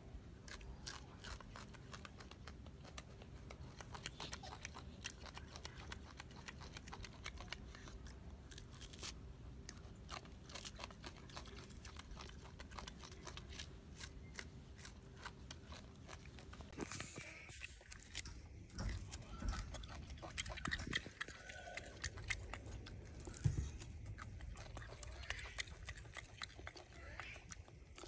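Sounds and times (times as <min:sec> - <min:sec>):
monkey chewing food: 0:00.2 - 0:28.0.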